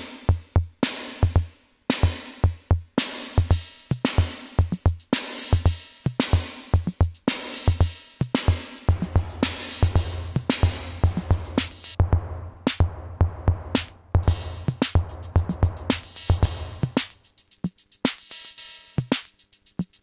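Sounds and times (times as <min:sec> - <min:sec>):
hi-hat ticks: 0:03.4 - 0:12.0, 0:13.8 - 0:20.0
low sustained bass drum boom: 0:08.9 - 0:17.0
punchy bass drum hits: 0:08.9 - 0:17.0.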